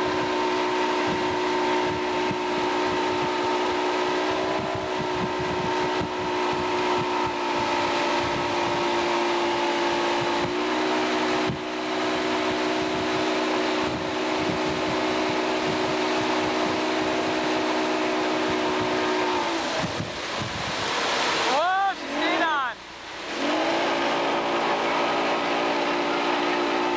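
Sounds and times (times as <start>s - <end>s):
wind buffeting microphone: 0.0s - 21.5s
motorboat engine running: 0.0s - 26.9s
water rushing past: 0.0s - 26.9s.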